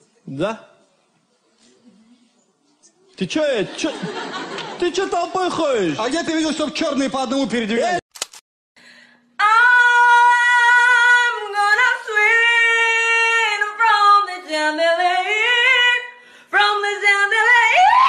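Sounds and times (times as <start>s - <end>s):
woman singing unaccompanied: 9.4s - 17.8s.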